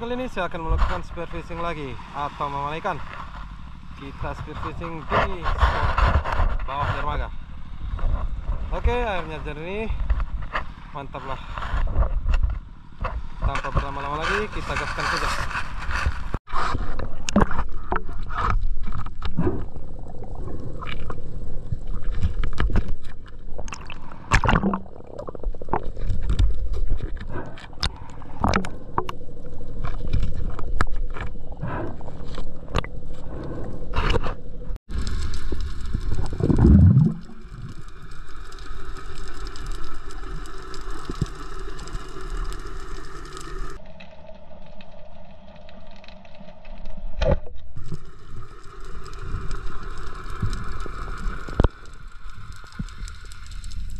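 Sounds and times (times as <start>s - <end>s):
low rumble: 3.4s - 44.4s
underwater clicks and knocks: 16.8s - 19.8s, 20.5s - 31.4s.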